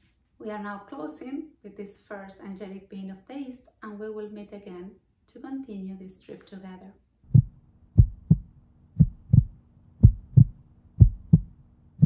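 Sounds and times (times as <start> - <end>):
heartbeat thumps: 7.3 - 11.6.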